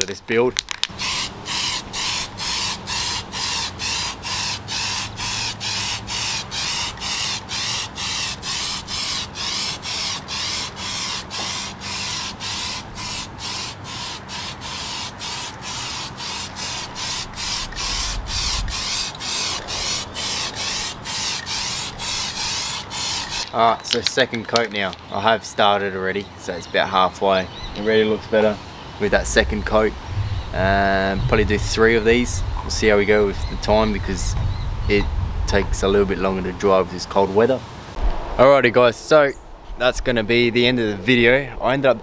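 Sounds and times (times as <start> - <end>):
aerosol can spraying in pulses: 0.9 - 23.5.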